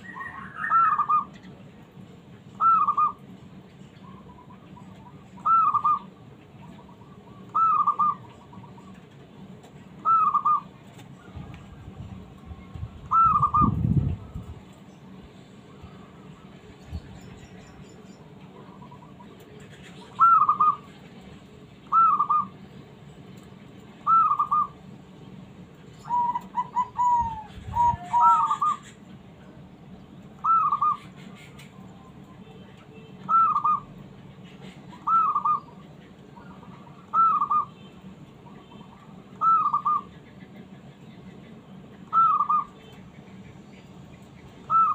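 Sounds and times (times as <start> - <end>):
dove cooing: 5.1 - 6.1, 6.8 - 8.9, 10.0 - 10.7, 13.1 - 13.8, 20.0 - 20.9, 21.9 - 22.5, 24.1 - 24.7, 26.0 - 29.0, 30.4 - 31.5, 33.3 - 33.9, 34.9 - 35.8, 36.5 - 37.7, 39.4 - 40.2, 42.1 - 42.7, 44.7 - 44.9.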